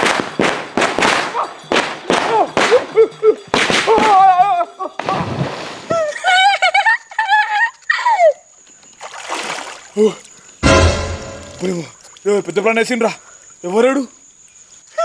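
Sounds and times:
firecrackers banging: 0:00.0 - 0:02.9, 0:03.5 - 0:04.1
people shouting: 0:02.2 - 0:03.0, 0:03.9 - 0:04.5
man splashing into water: 0:05.0 - 0:05.9, 0:09.0 - 0:10.0.

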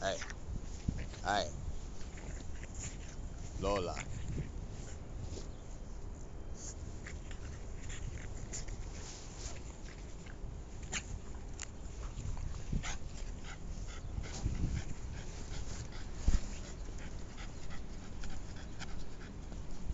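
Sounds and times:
dog vocalizing and breathing: 0:12.0 - 0:19.9.

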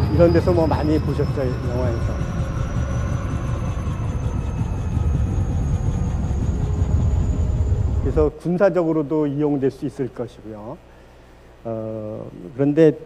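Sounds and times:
deep engine-like rumble: 0:00.0 - 0:10.2
high whine rising in pitch: 0:00.0 - 0:10.7.

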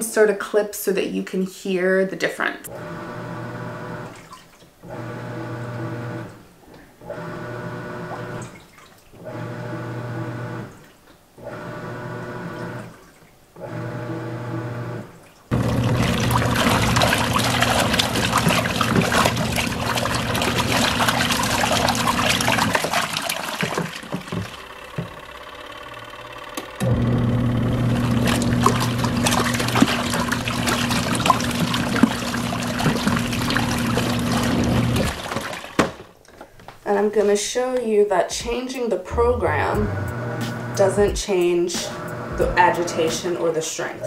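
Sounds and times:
washing machine motor humming: 0:02.7 - 0:06.4, 0:07.0 - 0:08.6, 0:09.2 - 0:10.8, 0:11.4 - 0:13.0, 0:13.6 - 0:36.1, 0:38.5 - 0:44.0
water and clothes churning: 0:04.0 - 0:05.1, 0:15.2 - 0:25.1, 0:27.7 - 0:36.3.

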